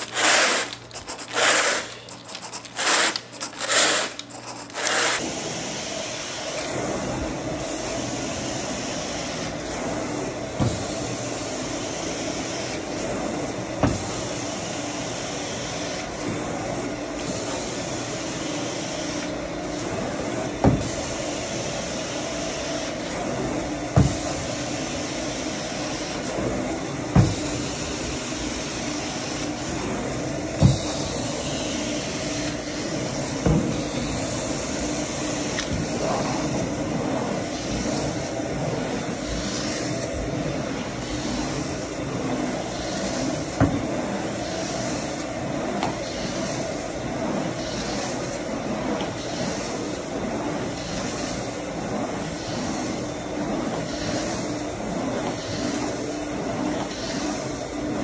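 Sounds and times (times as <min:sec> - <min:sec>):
carpet rake scraping: 0:00.0 - 0:05.2
extraction wand sucking water: 0:00.0 - 0:05.3.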